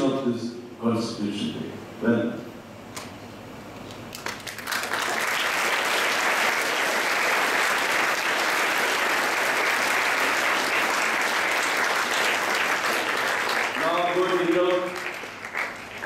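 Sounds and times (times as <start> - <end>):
audience applauding: 4.1 - 16.0.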